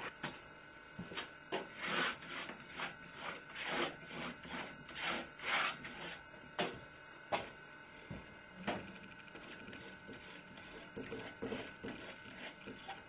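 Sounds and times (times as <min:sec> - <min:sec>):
palette knife scraping paint: 0:01.2 - 0:06.3, 0:09.3 - 0:13.0.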